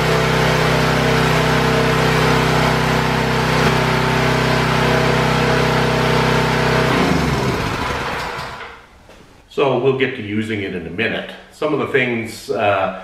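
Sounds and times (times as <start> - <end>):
gas engine running: 0.0 - 8.8.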